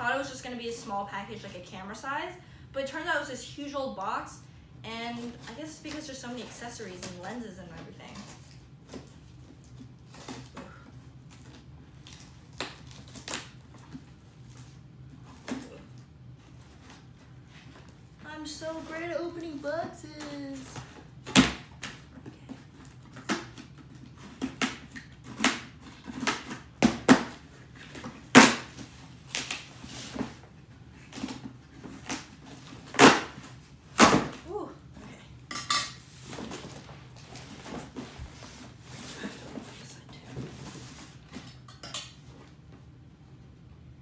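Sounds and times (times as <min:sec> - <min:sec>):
packing tape tearing: 0:11.3 - 0:14.8, 0:22.7 - 0:30.3.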